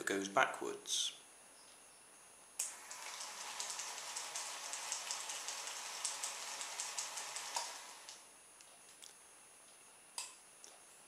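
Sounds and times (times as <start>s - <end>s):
toy motor rattling: 2.7s - 8.2s.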